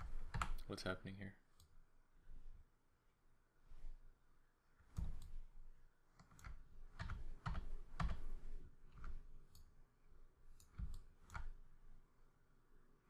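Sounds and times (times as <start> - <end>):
mouse and keyboard clicks: 4.8 - 5.4, 6.2 - 9.7, 10.5 - 11.6.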